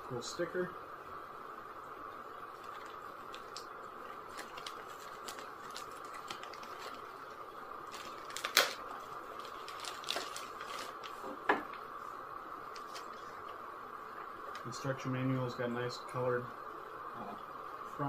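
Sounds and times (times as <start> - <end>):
plastic bag crinkling: 2.5 - 11.4, 12.7 - 13.6.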